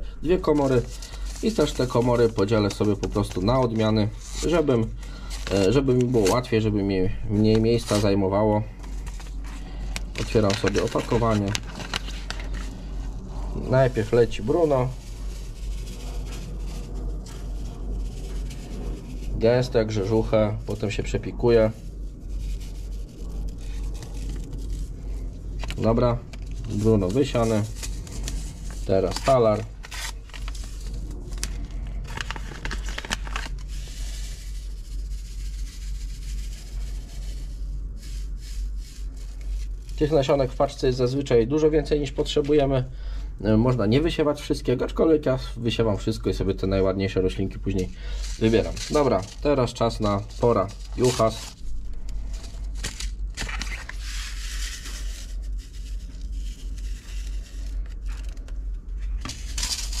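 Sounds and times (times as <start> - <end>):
paper seed packet rustling: 0.0 - 42.9, 45.8 - 60.0
low steady hum: 0.0 - 60.0
seeds crackling and ticking: 0.2 - 6.6.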